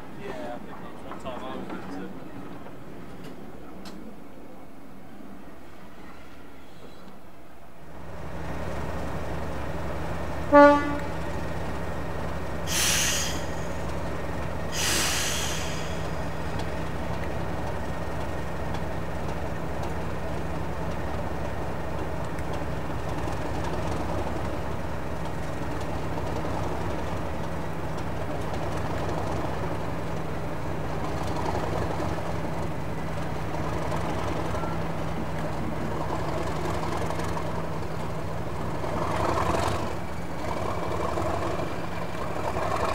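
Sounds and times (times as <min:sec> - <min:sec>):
diesel locomotive engine running: 0:00.0 - 0:42.9
locomotive horn blast: 0:10.5 - 0:11.4
air hissing: 0:12.7 - 0:13.9, 0:14.7 - 0:16.3.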